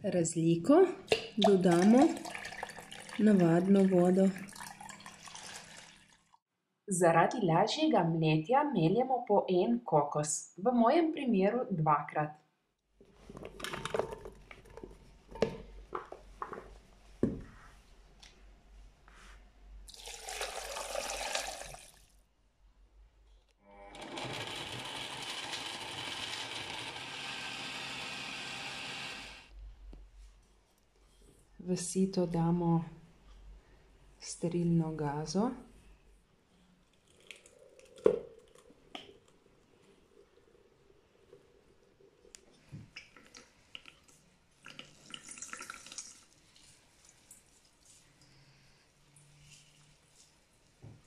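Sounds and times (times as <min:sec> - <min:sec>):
liquid trickling into a jug: 0:01.4 - 0:06.4, 0:19.9 - 0:22.1, 0:40.3 - 0:48.0
blender grinding: 0:23.7 - 0:29.5.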